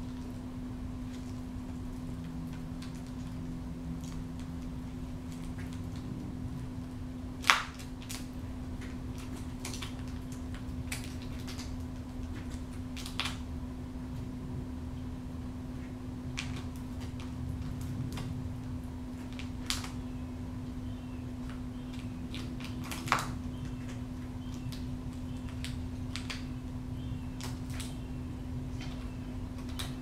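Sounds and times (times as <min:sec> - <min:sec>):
steady low hum: 0:00.0 - 0:30.0
falcon tearing meat clicks: 0:01.1 - 0:06.2, 0:06.8 - 0:13.5, 0:16.3 - 0:20.1, 0:21.4 - 0:28.1, 0:28.7 - 0:30.0.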